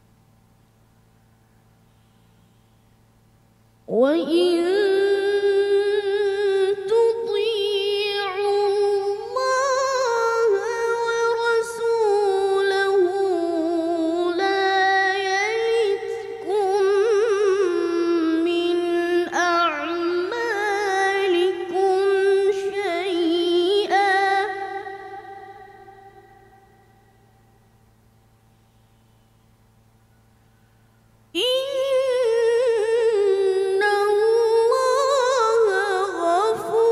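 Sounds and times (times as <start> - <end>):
boy reciting melodically: 3.9 - 26.8, 31.4 - 36.9.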